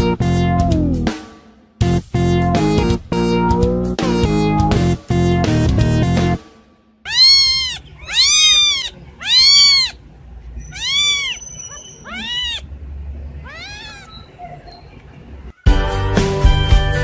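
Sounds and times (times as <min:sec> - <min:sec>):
kitten meowing: 0:07.1 - 0:10.0, 0:10.6 - 0:12.7, 0:13.4 - 0:14.4.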